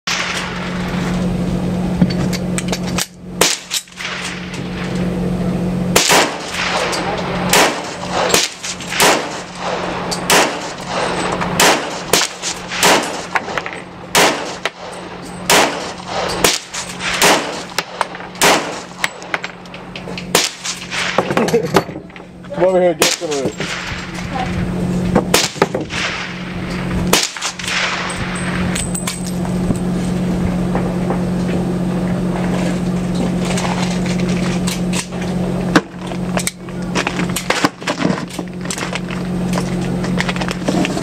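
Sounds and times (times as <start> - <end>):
shotgun shots: 0.1 - 0.8, 3.4 - 4.5, 5.9 - 19.4, 20.3 - 21.3, 23.0 - 24.1, 25.3 - 28.4
steady low hum: 0.1 - 41.0.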